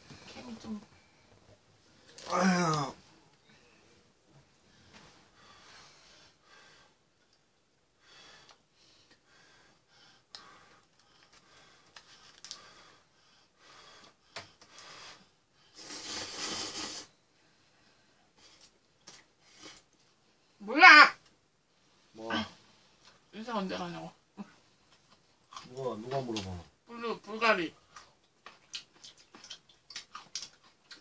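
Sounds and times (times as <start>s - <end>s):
person breathing: 4.6s - 7.0s
person slurping noodles: 15.8s - 17.1s
person chewing: 25.0s - 26.6s, 27.9s - 31.0s.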